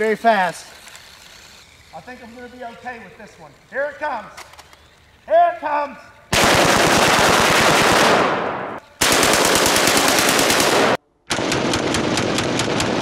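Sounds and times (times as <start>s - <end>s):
automatic rifle firing bursts: 6.3s - 13.0s.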